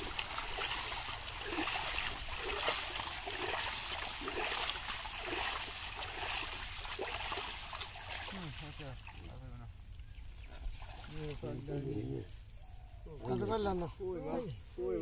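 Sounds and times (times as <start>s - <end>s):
shallow water splashing: 0.0s - 9.7s, 10.4s - 12.0s.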